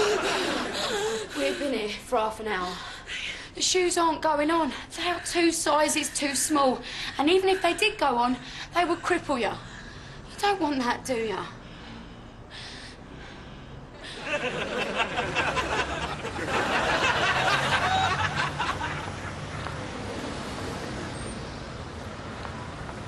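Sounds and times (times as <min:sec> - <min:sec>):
audience laughter: 0:00.0 - 0:01.7, 0:14.2 - 0:19.7
passers-by noise: 0:00.0 - 0:03.6, 0:04.7 - 0:23.0
street traffic: 0:00.0 - 0:23.0.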